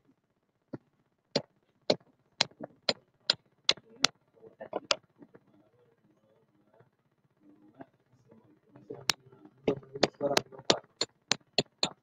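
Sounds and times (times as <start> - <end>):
hammer knocking on metal shackle: 9.7 - 12.0.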